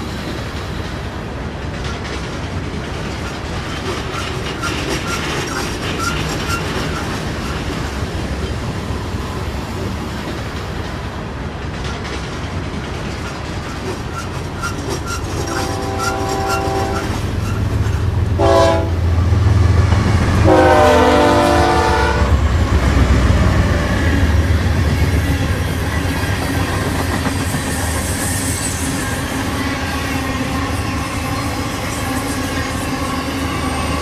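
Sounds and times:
freight train clattering on rails: 0.0s - 34.0s
locomotive air horn: 15.1s - 17.6s, 18.4s - 19.1s, 20.4s - 22.4s.

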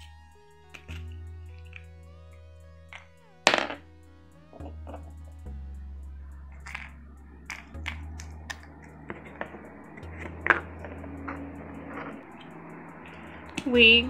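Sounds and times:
soft background music: 0.0s - 14.0s.

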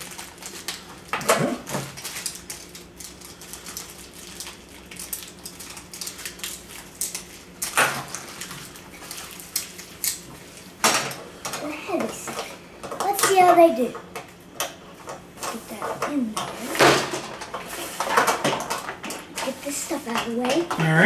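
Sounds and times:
plastic wrappers crinkling: 0.0s - 10.7s
plastic and metal parts clattering: 15.0s - 21.0s.

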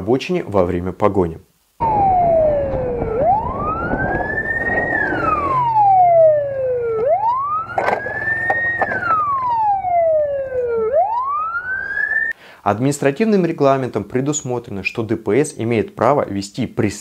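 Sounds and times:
low rumble: 1.8s - 10.1s
police siren wailing: 1.8s - 12.3s.

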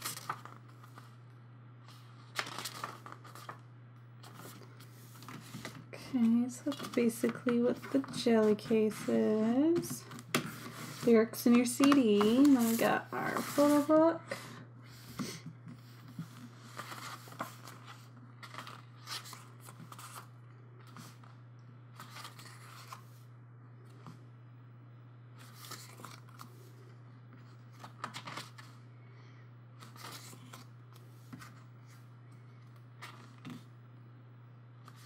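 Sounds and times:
pages rustling: 0.0s - 1.2s, 1.8s - 3.6s, 4.2s - 14.0s, 15.2s - 23.2s, 25.4s - 28.8s, 29.8s - 32.0s, 33.0s - 33.7s
steady low hum: 0.0s - 35.0s.

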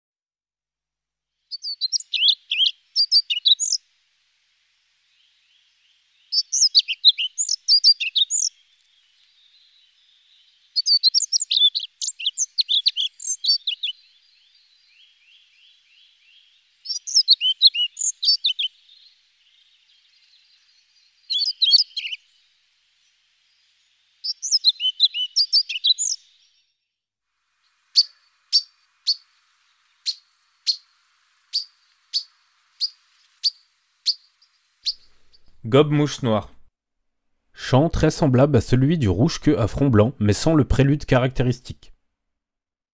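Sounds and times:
bird song phrases: 1.5s - 3.8s, 5.0s - 26.9s, 27.6s - 30.9s, 31.5s - 36.7s, 37.6s - 41.8s
short sharp bird notes: 21.3s - 22.2s, 31.5s - 36.7s.

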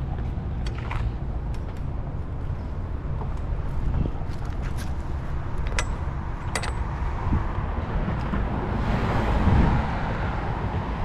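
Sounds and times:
street traffic rumble: 0.0s - 11.0s
car passing: 6.1s - 11.0s.

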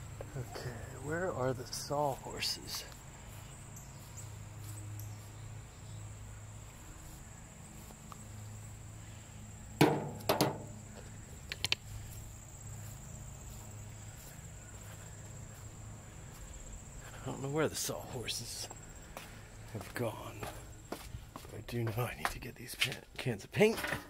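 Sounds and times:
sharp knocks: 9.8s - 10.8s.

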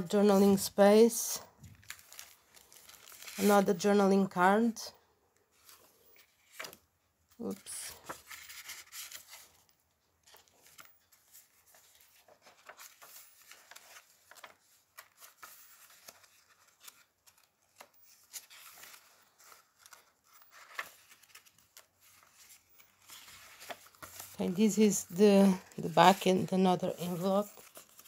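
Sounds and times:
paper pages rustling: 0.0s - 4.4s, 5.5s - 28.0s.

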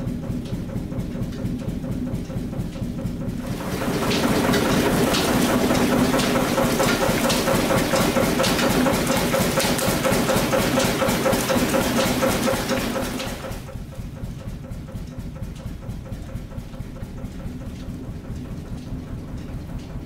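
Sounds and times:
roller mill rhythmic pulse: 0.0s - 20.0s
rollers clicking and knocking: 3.4s - 13.7s.

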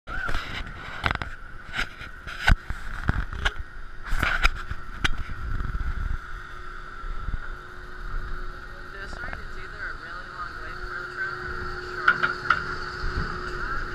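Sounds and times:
roller coaster high-pitched hum: 0.1s - 13.9s
sharp clanks and knocks: 12.0s - 13.3s.

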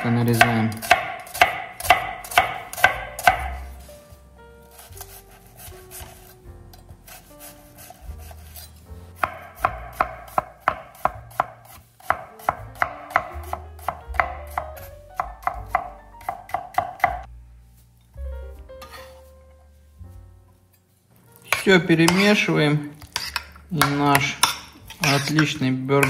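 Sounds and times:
knife chopping onion on wooden board: 0.0s - 3.7s, 9.2s - 17.3s.

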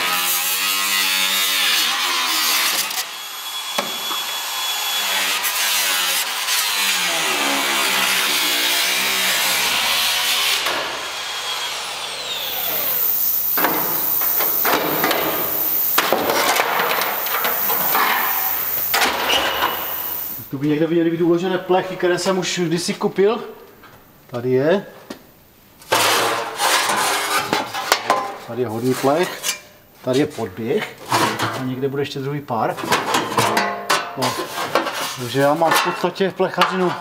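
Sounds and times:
electric power tool on sheet steel: 0.0s - 20.5s
thin high whine: 11.4s - 20.5s.

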